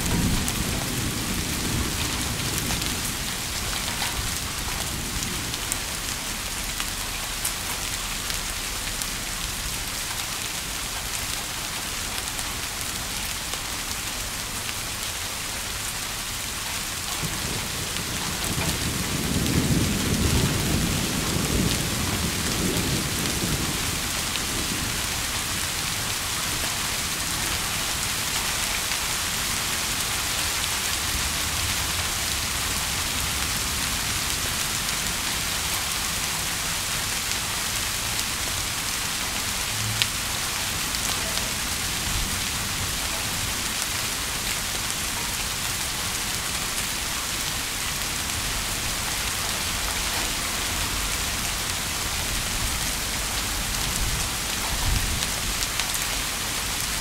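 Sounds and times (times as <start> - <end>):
thunder rumbling: 0.0 - 6.4, 17.2 - 26.7
steady rain: 0.0 - 57.0.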